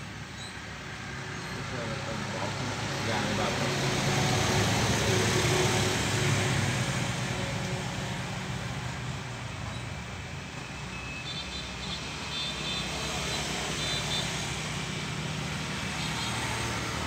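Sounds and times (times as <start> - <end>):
vehicle passing: 1.2 - 8.9, 12.8 - 17.0.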